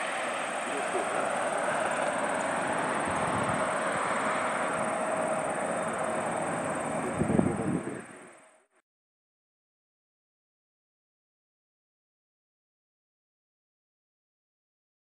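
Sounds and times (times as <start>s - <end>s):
jet engines at takeoff: 0.0s - 8.7s.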